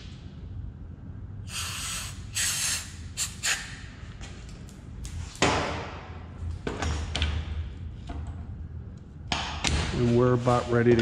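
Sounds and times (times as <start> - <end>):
aerosol spray can hissing: 1.5 - 3.7.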